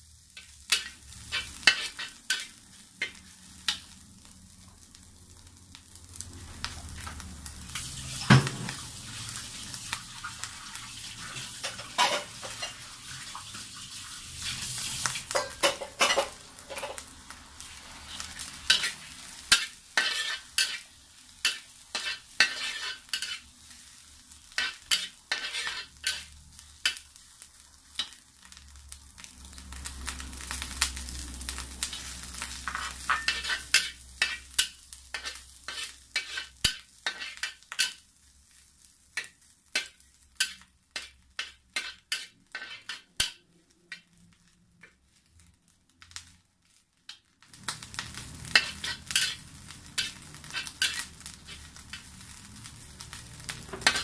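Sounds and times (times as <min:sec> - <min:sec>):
food sizzling: 0:00.0 - 0:54.0
metal spatula scraping a wok: 0:00.4 - 0:03.9, 0:11.2 - 0:13.2, 0:14.3 - 0:17.0, 0:17.8 - 0:23.8, 0:24.5 - 0:27.0, 0:30.5 - 0:38.0, 0:39.2 - 0:44.2, 0:47.9 - 0:52.4, 0:53.1 - 0:54.0.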